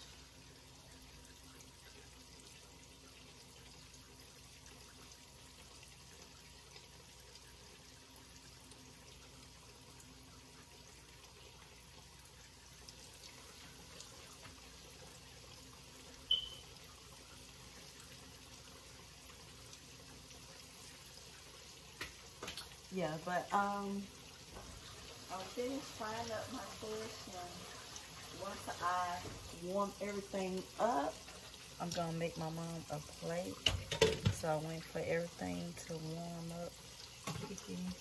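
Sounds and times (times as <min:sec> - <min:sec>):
fish sizzling in hot oil: 0:00.0 - 0:38.0
sharp high clink: 0:16.3 - 0:16.6.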